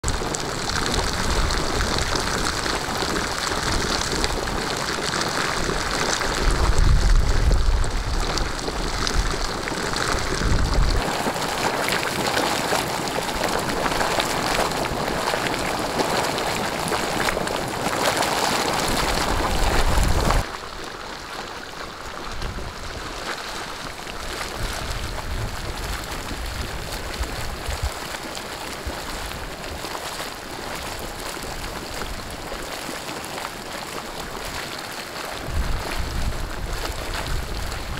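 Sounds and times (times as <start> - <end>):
spring water gushing and bubbling: 0.0 - 37.9.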